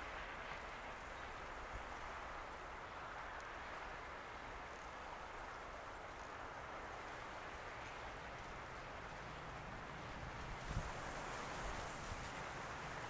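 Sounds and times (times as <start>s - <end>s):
choppy water: 0.0s - 13.0s
wind rumble on microphone: 0.0s - 13.0s.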